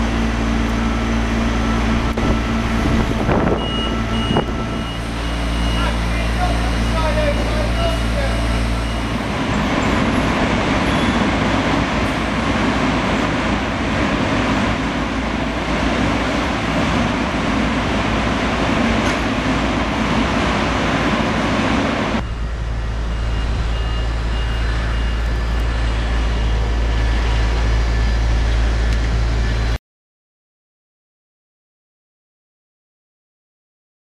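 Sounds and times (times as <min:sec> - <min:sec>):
industrial machinery rumble and hiss: 0:00.0 - 0:29.8
wind on microphone: 0:01.9 - 0:04.9.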